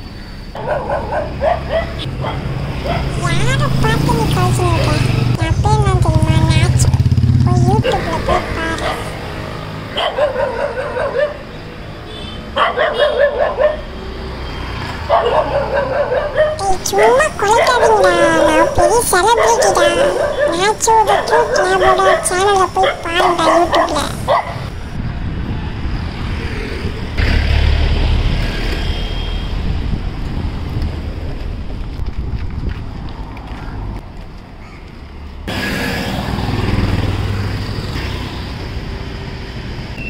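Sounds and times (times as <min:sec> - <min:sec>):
road traffic rumble: 0:00.0 - 0:40.0
dog yelping: 0:00.6 - 0:03.4, 0:07.8 - 0:09.2, 0:10.0 - 0:11.4, 0:12.6 - 0:13.8, 0:15.0 - 0:18.8, 0:19.4 - 0:24.7.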